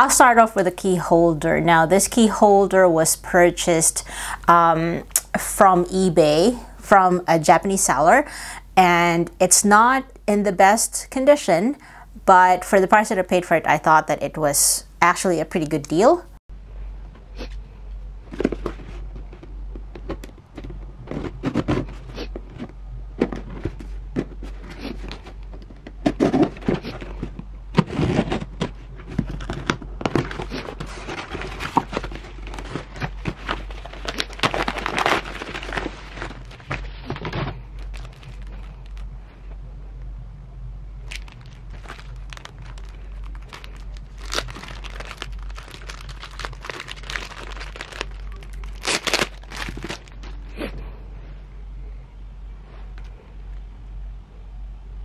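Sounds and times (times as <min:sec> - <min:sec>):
low steady hum: 0:00.0 - 0:55.0
paper and plastic crinkling: 0:18.3 - 0:39.2, 0:41.1 - 0:50.7.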